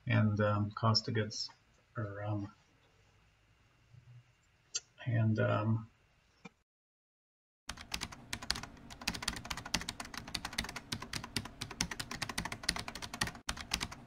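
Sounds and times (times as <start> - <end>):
rapid keyboard typing: 7.7 - 14.0.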